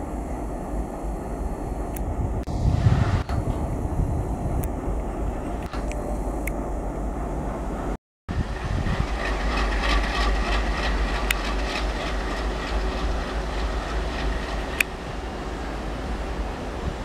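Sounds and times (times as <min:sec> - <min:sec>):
diesel locomotive rumbling: 0:00.0 - 0:17.0
wagon wheels on rails: 0:08.4 - 0:15.4.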